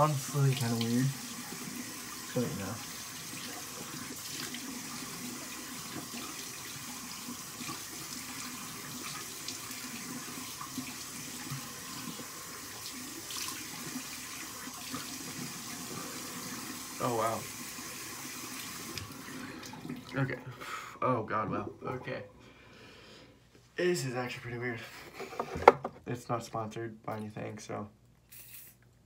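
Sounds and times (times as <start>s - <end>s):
sink tap running: 0.0s - 20.2s.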